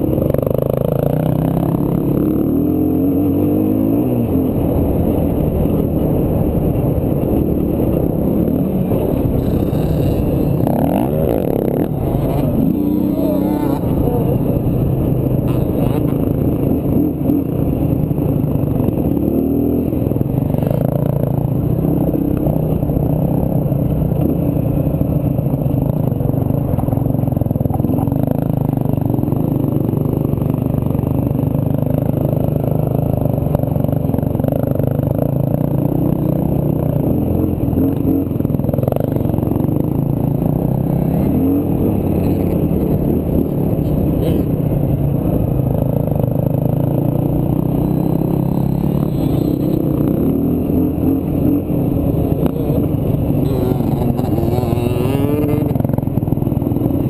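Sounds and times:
dirt bike engine revving: 7.8 - 16.3, 47.5 - 56.6.

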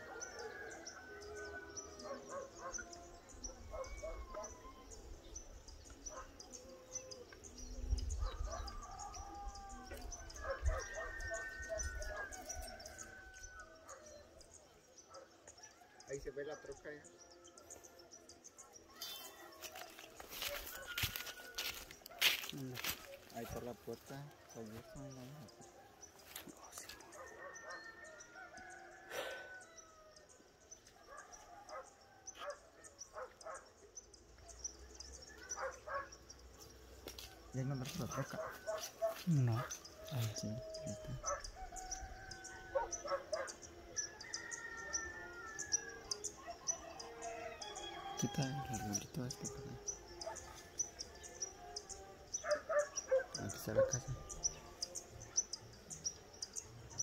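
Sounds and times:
rooster crowing: 9.0 - 13.9, 27.2 - 30.0, 40.0 - 49.0.

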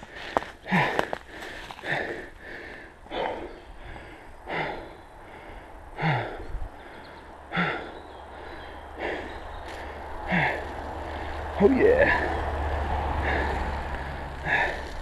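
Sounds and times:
person breathing hard: 0.0 - 15.0
slight grunt: 11.6 - 12.4.

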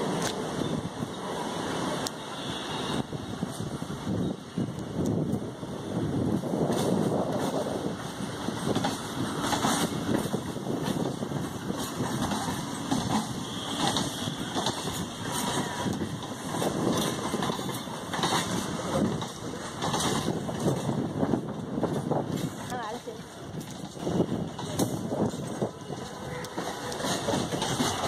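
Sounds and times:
train coaches rumbling: 0.0 - 28.0
wheels clattering over rail joints: 8.6 - 23.0, 23.6 - 28.0.

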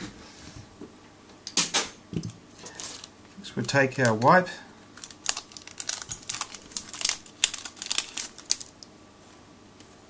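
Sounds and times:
foil sachet crinkling: 2.6 - 3.1, 4.9 - 8.9.

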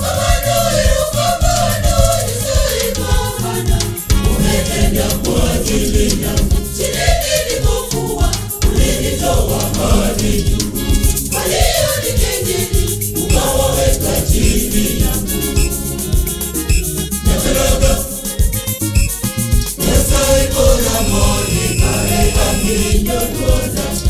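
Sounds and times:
choir singing gospel song: 0.0 - 18.6, 19.7 - 24.0
instrumental backing with beat: 0.0 - 24.0.

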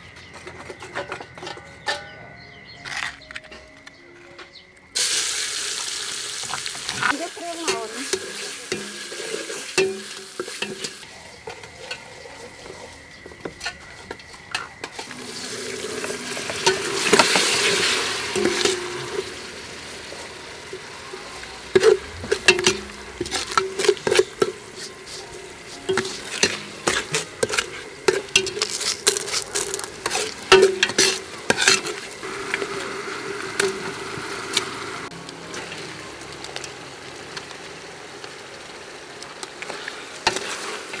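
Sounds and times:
spice paste sizzling in oil: 5.0 - 41.0
metal spoon scraping a pot: 8.1 - 19.4, 21.7 - 32.2.

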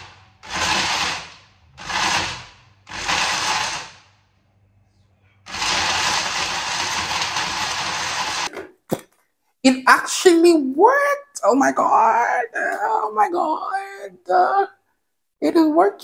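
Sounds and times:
blender grinding: 0.0 - 4.1, 5.5 - 8.6.

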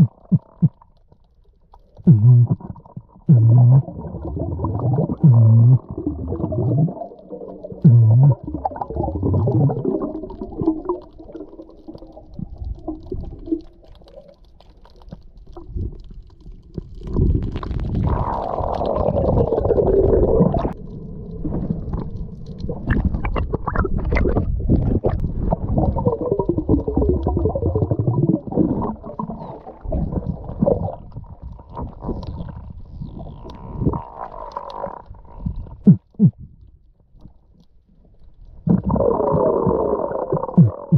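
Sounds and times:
muffled underwater grunts: 2.0 - 6.6, 35.6 - 36.4, 40.4 - 40.9.

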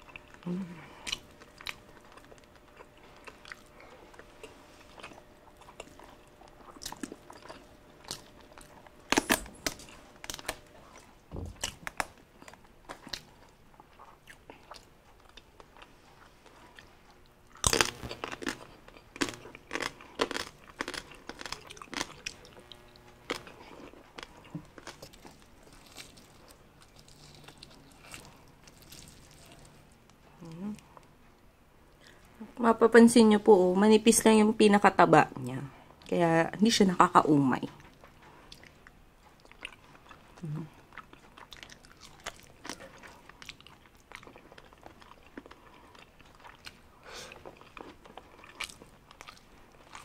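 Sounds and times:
chewing and crunching: 0.0 - 31.2, 37.6 - 50.0
hands tearing meat: 24.1 - 30.2.

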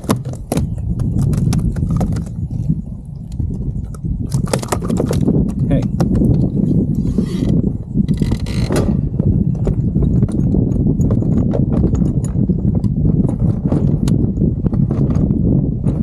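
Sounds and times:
small waves slapping a hull: 0.0 - 6.8
wind rumble on microphone: 0.0 - 16.0.

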